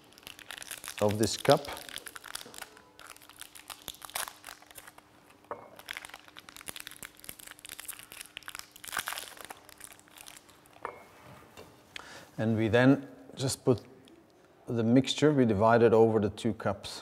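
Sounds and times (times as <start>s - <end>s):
sweet wrappers rustling: 0.0s - 10.8s.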